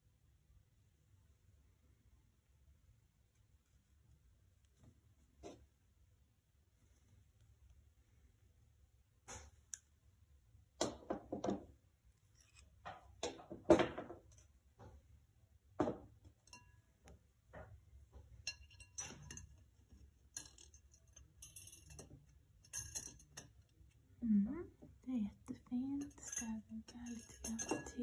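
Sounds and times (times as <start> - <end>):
metal clinking against glass: 16.4 - 16.8, 18.5 - 19.6, 20.3 - 23.6, 25.9 - 28.0
glass vase and tools knocking: 26.0 - 28.0.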